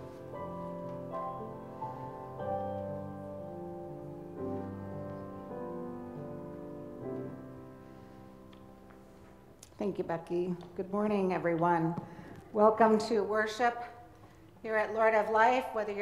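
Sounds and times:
slow quiet piano music: 0.0s - 12.3s.

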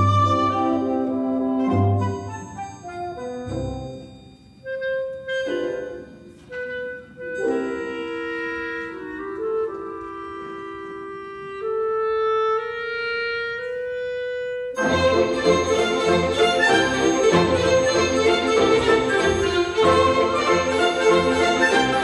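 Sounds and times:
full orchestra playing: 0.0s - 22.0s
soft orchestral accompaniment: 0.0s - 22.0s
woodwind phrases: 0.0s - 22.0s.

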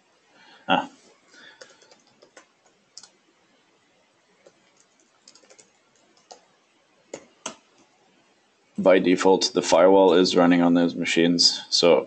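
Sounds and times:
keyboard typing: 1.4s - 3.2s, 4.4s - 7.9s.

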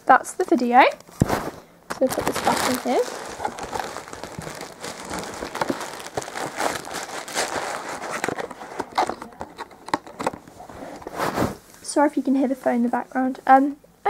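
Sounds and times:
plastic bag crinkling: 1.2s - 11.6s.

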